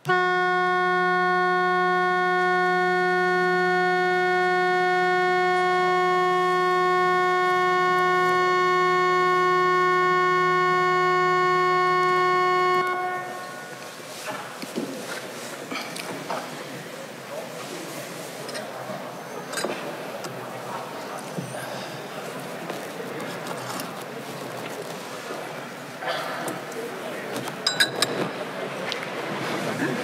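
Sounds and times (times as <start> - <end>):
long steady electronic tone: 0.0 - 13.8.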